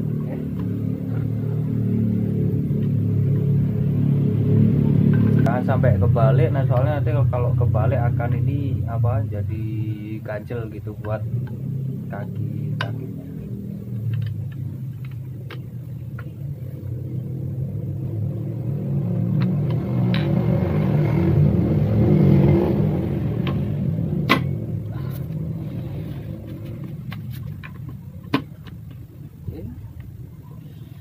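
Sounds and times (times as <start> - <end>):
vehicle engine passing by: 0.0 - 15.5, 16.4 - 27.6.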